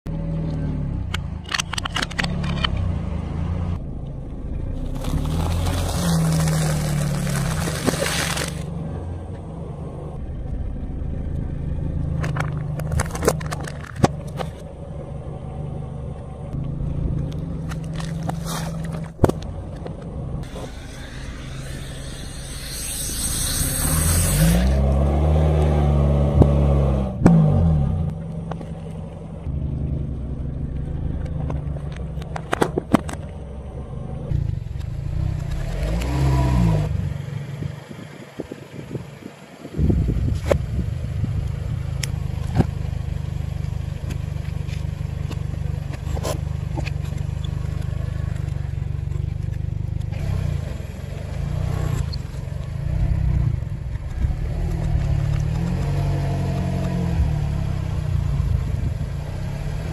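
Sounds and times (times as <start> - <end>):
car engine running low: 0.0 - 59.9
tyre crunching objects: 4.8 - 8.7, 17.6 - 20.8.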